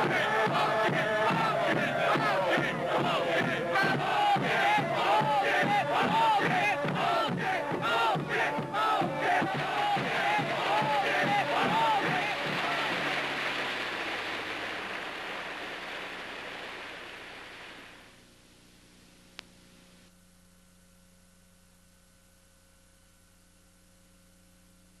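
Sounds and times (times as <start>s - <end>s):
rushing noise: 9.6s - 18.2s
faint hum and hiss: 11.6s - 25.0s.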